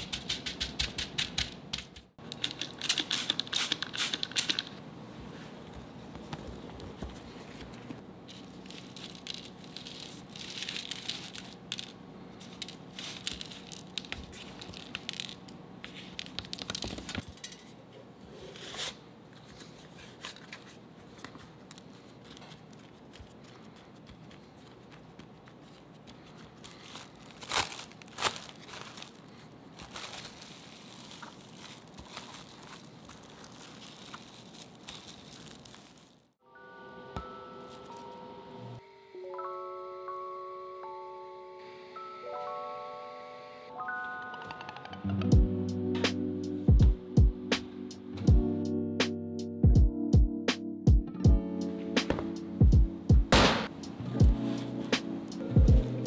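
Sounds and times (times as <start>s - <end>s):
cling film crinkling: 8.3s - 17.2s, 20.2s - 36.4s
oat flakes rustling: 25.6s - 36.3s.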